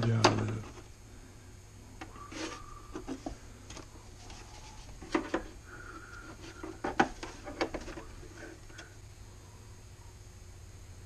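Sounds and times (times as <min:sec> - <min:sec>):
plastic rubbing and scraping: 0:02.0 - 0:08.8
plastic knocks and clatters: 0:05.0 - 0:05.5, 0:06.5 - 0:08.1.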